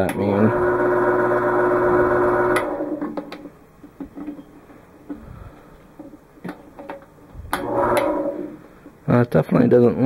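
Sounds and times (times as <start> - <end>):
lathe motor humming: 0.4 - 3.5, 7.5 - 8.6.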